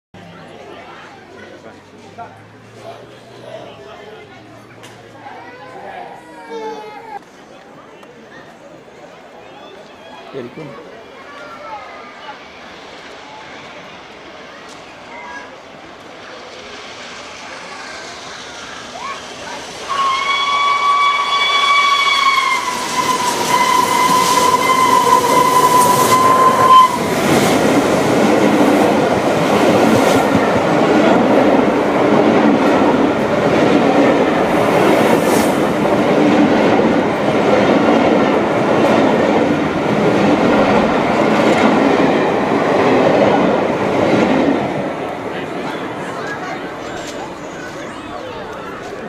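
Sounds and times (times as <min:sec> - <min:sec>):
train coaches rattling past: 0:07.1 - 0:49.0
steam locomotive whistle: 0:19.8 - 0:27.3.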